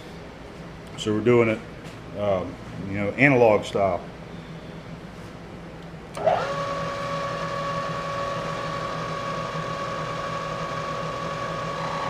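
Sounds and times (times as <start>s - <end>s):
milling machine motor humming: 6.1s - 12.0s.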